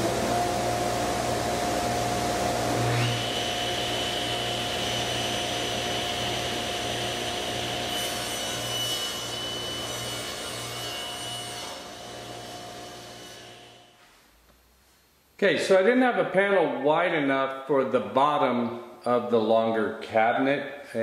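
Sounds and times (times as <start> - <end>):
table saw cutting wood: 0.0 - 14.0.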